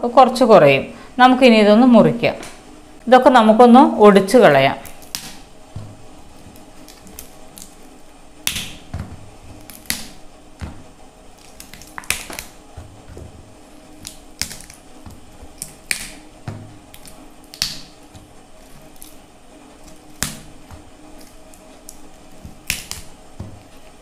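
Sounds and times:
cauliflower stalks snapping: 8.4s - 8.8s, 11.4s - 12.6s, 14.0s - 16.2s, 16.9s - 19.2s, 19.8s - 23.9s.

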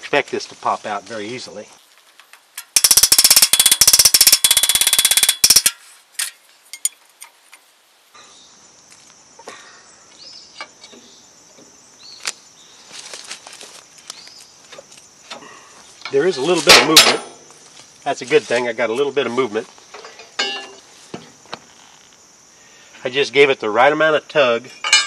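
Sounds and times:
high insect drone: 0.7s - 5.8s, 6.4s - 25.0s
pry bar metallic knocks: 20.0s - 20.8s.

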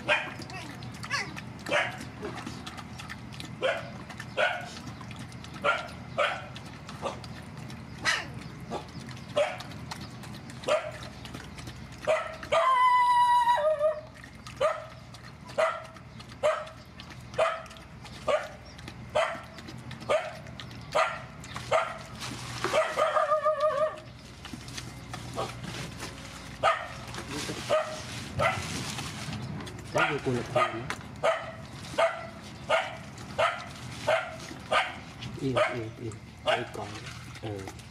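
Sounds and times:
puppy crying and yelping: 12.1s - 14.9s.

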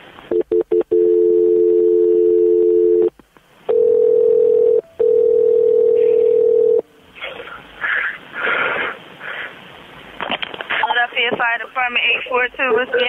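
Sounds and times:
steady telephone tone: 0.3s - 3.1s, 3.7s - 6.9s
two-tone dial tone: 0.3s - 3.1s, 3.7s - 6.8s
person breathing heavily: 7.4s - 9.7s.

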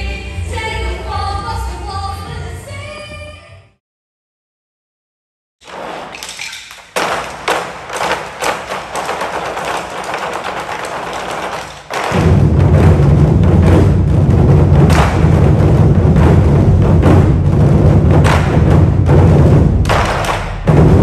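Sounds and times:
drum ensemble booming: 7.0s - 21.0s
sharp drum knocks: 7.0s - 21.0s.

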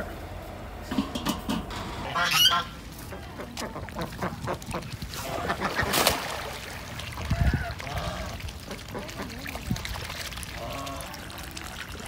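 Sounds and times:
ducks quacking: 2.0s - 6.0s, 7.2s - 9.6s.

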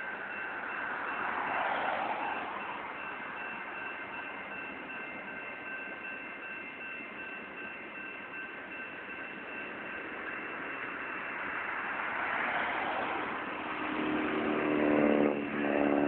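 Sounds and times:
train wheels on rails: 0.0s - 16.0s
high whine: 13.1s - 16.0s.

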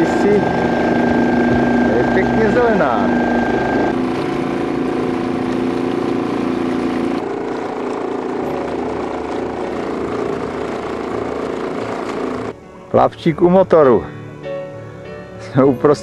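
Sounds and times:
outboard motor droning: 0.0s - 12.6s.

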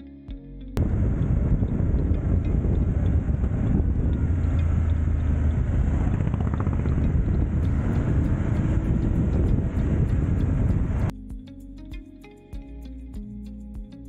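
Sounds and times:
motorcycle engine running: 0.8s - 11.1s
wind and road noise: 0.8s - 11.1s.

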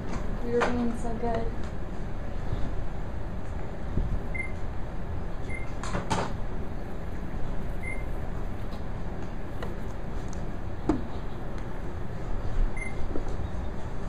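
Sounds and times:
low room rumble: 0.0s - 14.0s.

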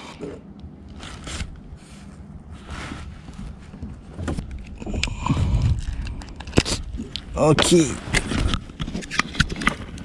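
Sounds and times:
low rumble: 1.5s - 8.7s.

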